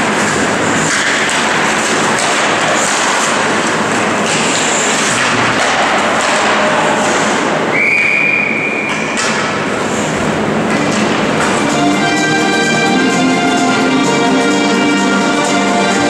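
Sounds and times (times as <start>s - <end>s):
ice hockey game noise: 0.0s - 16.0s
referee whistle blast: 7.7s - 9.1s.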